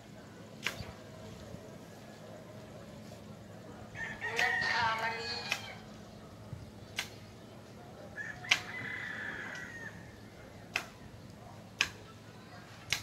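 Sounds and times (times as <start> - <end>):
rooster crowing: 4.0 - 5.8, 8.2 - 10.0.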